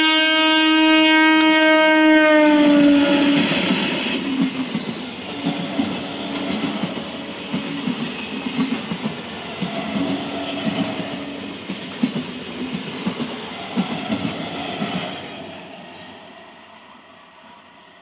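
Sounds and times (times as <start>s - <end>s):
train rushing noise: 1.3s - 18.0s
train wheels knocking on rail joints: 3.1s - 15.0s.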